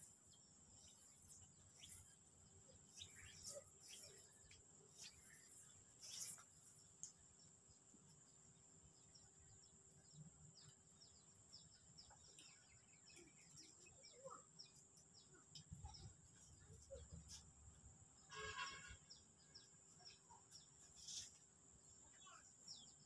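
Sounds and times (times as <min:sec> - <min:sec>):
bird chirps: 0:00.0 - 0:17.5, 0:18.2 - 0:23.0.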